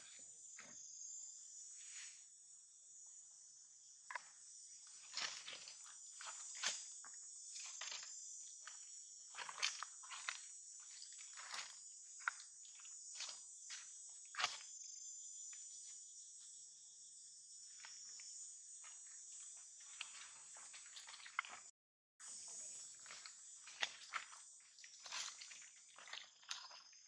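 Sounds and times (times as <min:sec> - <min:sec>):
high-pitched insect drone: 0:00.0 - 0:27.0
crackles and rustles of dry leaves: 0:04.8 - 0:13.4, 0:19.8 - 0:27.0.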